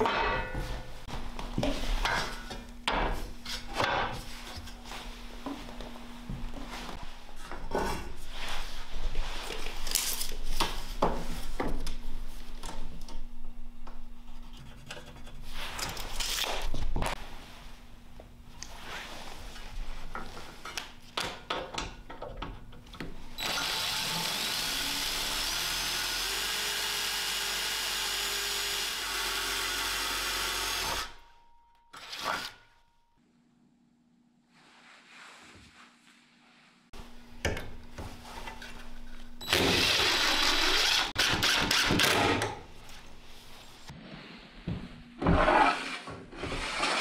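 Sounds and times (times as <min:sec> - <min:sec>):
power drill boring through metal: 0:23.4 - 0:31.2, 0:39.4 - 0:42.2.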